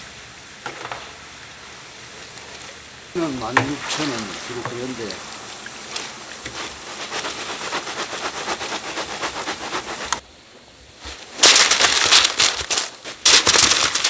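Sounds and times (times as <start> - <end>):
oil sizzling and crackling: 0.0 - 14.0
rustling crackle on paper: 2.2 - 10.2, 11.0 - 14.0.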